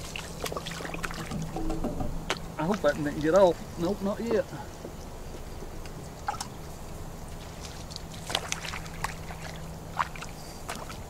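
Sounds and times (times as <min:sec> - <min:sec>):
fish splashing at water surface: 0:00.0 - 0:01.7, 0:07.4 - 0:11.0
steady low hum: 0:00.0 - 0:11.0.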